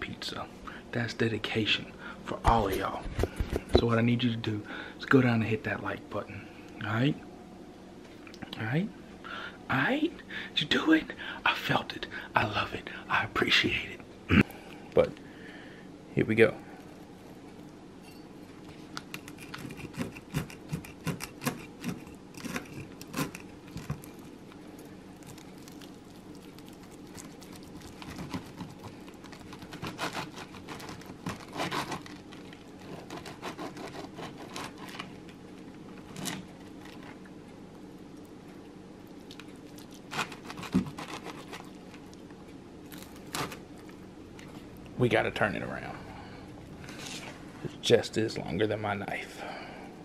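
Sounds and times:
knife sawing through pizza crust: 0:19.3 - 0:23.5, 0:29.6 - 0:32.2, 0:32.8 - 0:35.0, 0:40.1 - 0:41.6.

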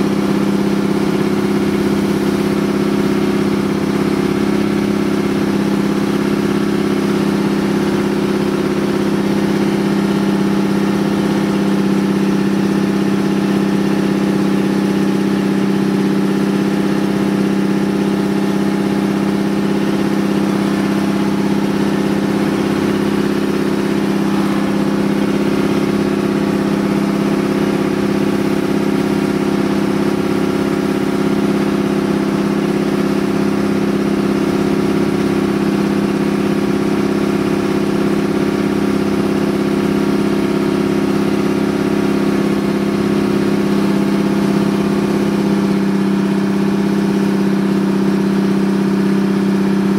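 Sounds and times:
boat engine humming: 0:00.0 - 0:49.9.

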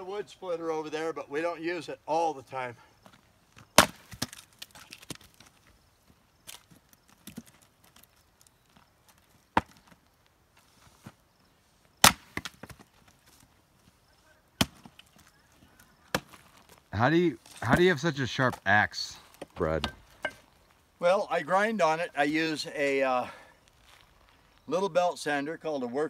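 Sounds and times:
axe chopping wood: 0:03.8 - 0:05.1, 0:09.6 - 0:09.8, 0:12.0 - 0:12.8, 0:14.6 - 0:15.1.

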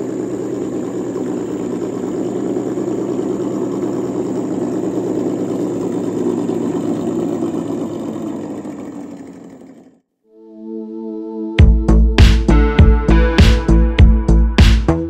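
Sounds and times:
engine-like idling rumble: 0:00.0 - 0:10.1.

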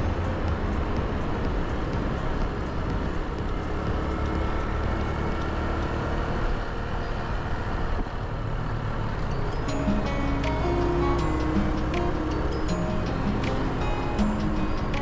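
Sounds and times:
motorcycle engine running: 0:00.0 - 0:06.8.

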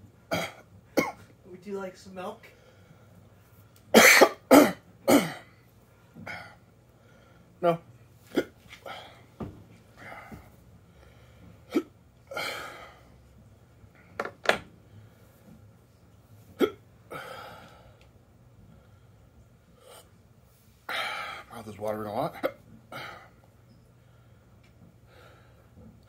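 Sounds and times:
man hiccuping: 0:04.0 - 0:05.5
breathy exhales: 0:17.1 - 0:18.0.

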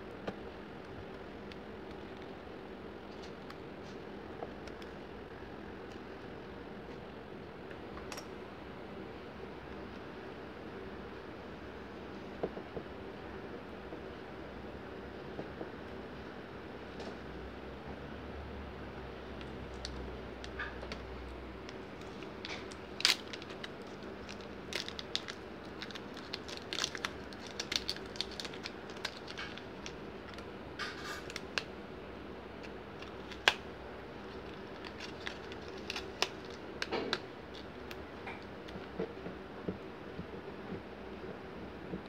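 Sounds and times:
faint steady hum: 0:00.0 - 0:42.0
clicks and crackles of prying: 0:21.6 - 0:31.7, 0:34.3 - 0:39.1.

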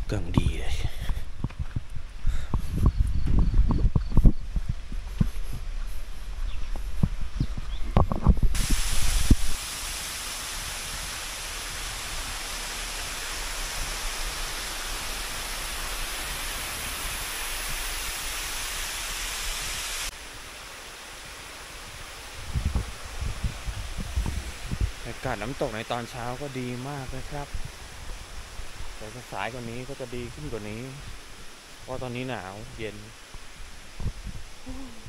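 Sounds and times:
waterfall rushing: 0:08.6 - 0:33.2.

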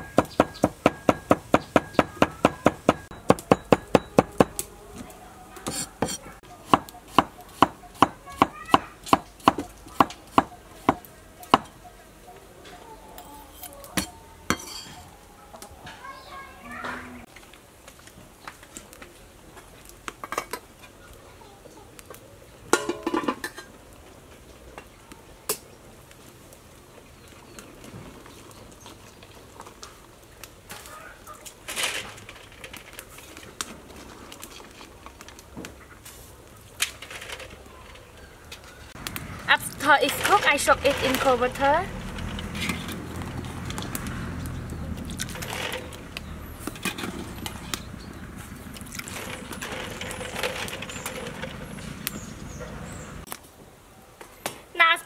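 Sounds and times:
metal pot and lid clinking: 0:13.3 - 0:15.1, 0:22.7 - 0:23.7.

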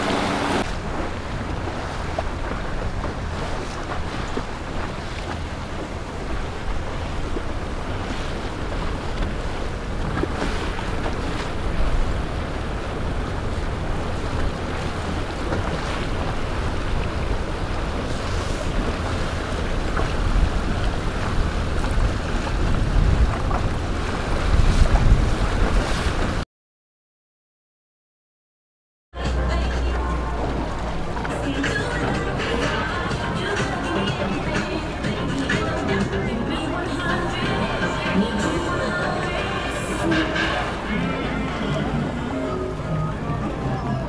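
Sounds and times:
boat motors rushing: 0:00.0 - 0:24.4, 0:29.2 - 0:44.0
churning water: 0:00.0 - 0:26.4, 0:29.2 - 0:44.0
wind buffeting microphone: 0:00.0 - 0:26.4.

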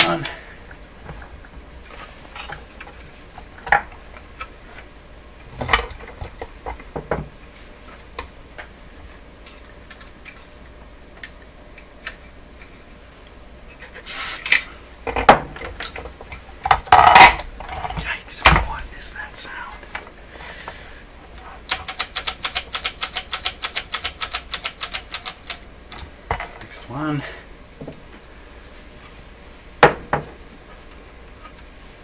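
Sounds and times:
spray hiss: 0:14.0 - 0:14.4.

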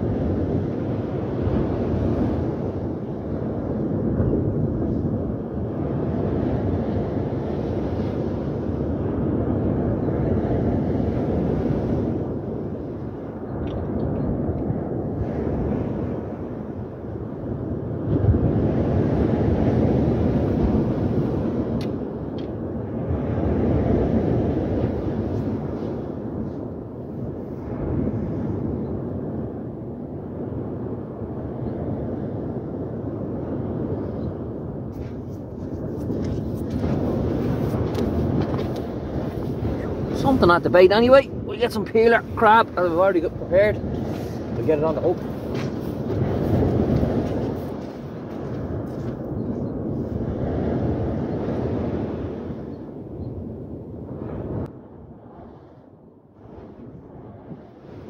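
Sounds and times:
wind rumbling on microphone: 0:00.0 - 0:58.0
waves breaking on shingle: 0:43.9 - 0:49.3.

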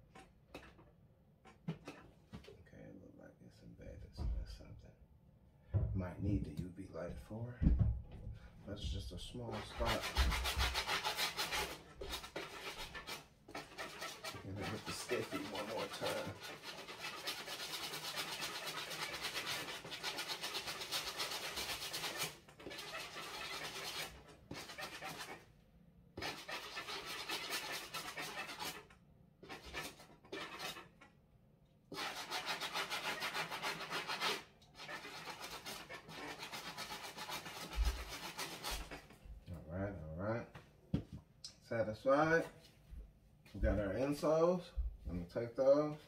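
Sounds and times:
scrub brush scrubbing sneaker: 0:09.5 - 0:25.4, 0:26.2 - 0:28.8, 0:29.4 - 0:30.9, 0:31.9 - 0:39.0.

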